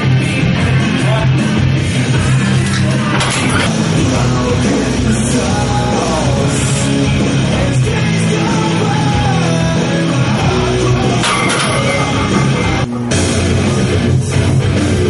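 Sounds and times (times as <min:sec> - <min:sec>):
electric guitar: 0:00.0 - 0:15.0
loud rock music: 0:00.0 - 0:15.0
person singing: 0:03.6 - 0:12.8.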